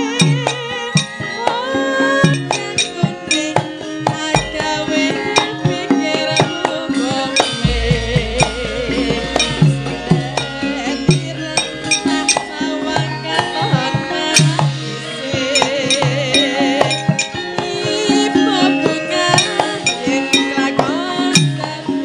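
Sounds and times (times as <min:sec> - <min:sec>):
hand drum strokes: 0:00.0 - 0:21.9
gamelan ensemble playing: 0:00.0 - 0:22.0
metallophone notes: 0:00.0 - 0:22.0
woman singing into microphone: 0:00.0 - 0:22.0
deep ringing low note: 0:07.6 - 0:12.3.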